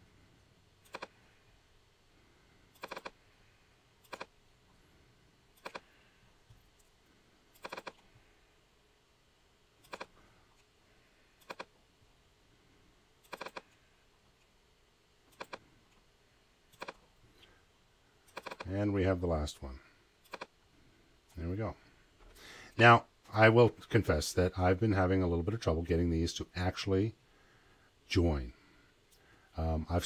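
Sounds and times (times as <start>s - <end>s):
computer mouse clicks: 0.8s - 1.2s, 2.7s - 3.2s, 4.0s - 4.4s, 5.6s - 6.9s, 7.5s - 8.1s, 9.8s - 10.7s, 11.4s - 11.8s, 13.2s - 13.8s, 15.3s - 16.0s, 16.7s - 17.6s, 18.3s - 18.7s, 20.2s - 20.6s.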